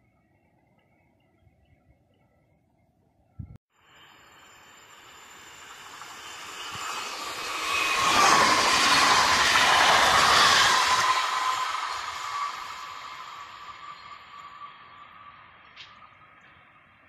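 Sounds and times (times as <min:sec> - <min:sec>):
high electric whine: 0:03.7 - 0:17.0
train wheels rushing on rails: 0:03.8 - 0:17.0.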